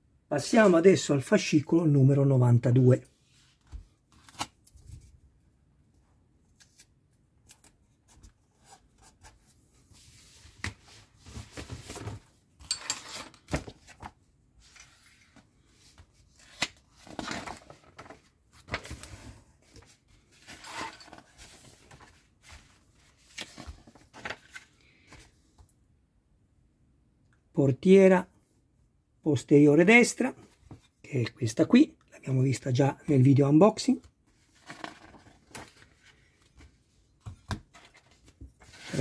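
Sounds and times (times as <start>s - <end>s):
magazine pages rustling: 7.6s - 12.4s, 13.2s - 25.5s, 34.3s - 36.9s, 37.7s - 39.0s.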